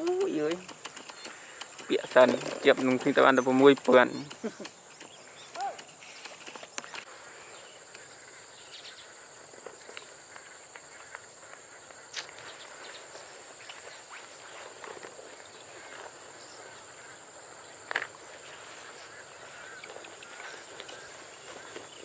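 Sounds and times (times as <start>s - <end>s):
eggs clicking together: 0.0s - 6.6s
crickets droning: 0.0s - 22.0s
faint outdoor ambience: 0.0s - 22.0s.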